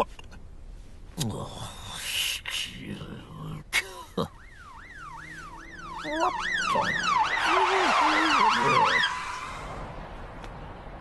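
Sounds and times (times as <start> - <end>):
police siren wailing: 4.3 - 9.8
second siren wailing: 4.4 - 9.8.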